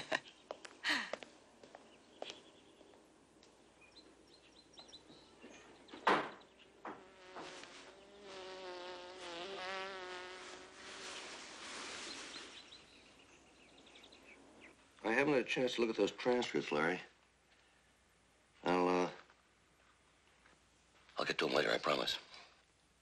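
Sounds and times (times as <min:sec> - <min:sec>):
insect buzzing: 0:05.8 - 0:14.8.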